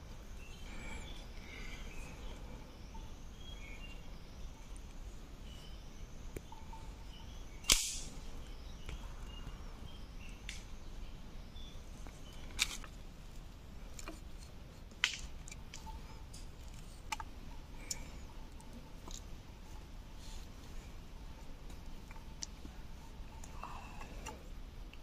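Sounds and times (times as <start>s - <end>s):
spring trap clicks and snaps: 7.6s - 8.1s.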